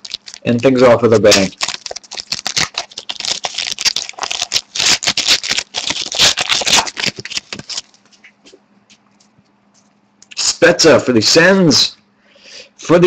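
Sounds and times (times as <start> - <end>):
wrapper tearing and crinkling: 0.0 - 8.0.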